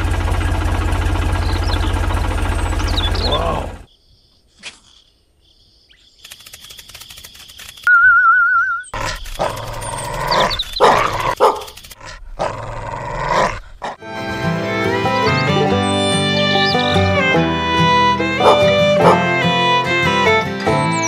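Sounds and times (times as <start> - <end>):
dog barking: 10.8 - 11.8, 18.4 - 19.2.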